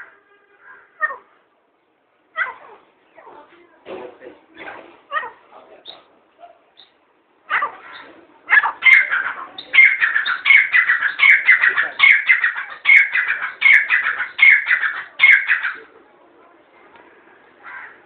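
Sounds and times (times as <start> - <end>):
bird calling harsh repeated notes: 6.8 - 15.8.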